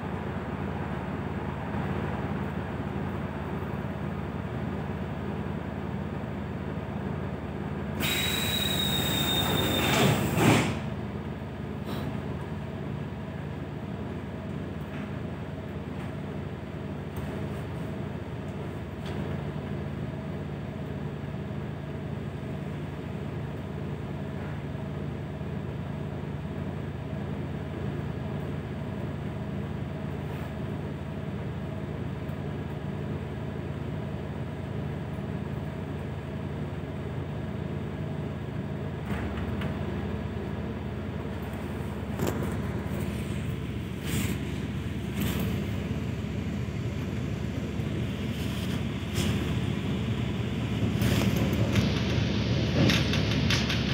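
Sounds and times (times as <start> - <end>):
wheel and track noise: 8.0 - 10.9, 41.2 - 53.9
electric train humming: 40.2 - 53.9.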